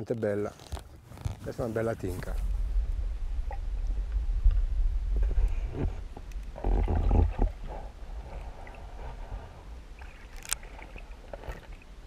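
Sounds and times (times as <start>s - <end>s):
low rumble: 2.0s - 10.1s
water sloshing: 5.2s - 12.0s.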